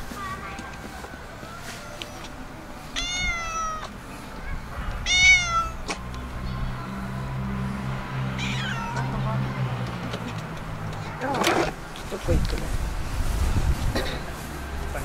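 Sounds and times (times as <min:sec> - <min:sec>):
cat meowing: 0:03.0 - 0:04.0, 0:04.9 - 0:05.9, 0:08.4 - 0:09.1.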